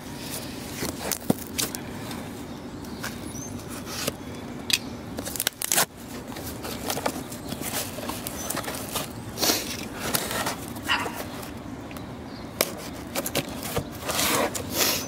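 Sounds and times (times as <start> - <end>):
cardboard box being torn open: 5.2 - 5.9.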